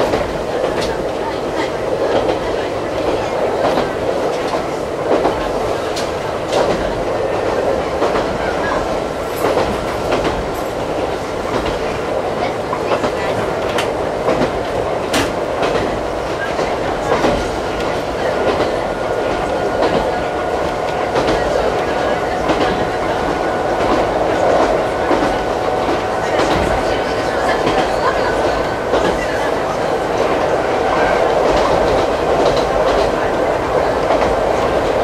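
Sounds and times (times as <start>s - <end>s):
train rumble: 0.0s - 35.0s.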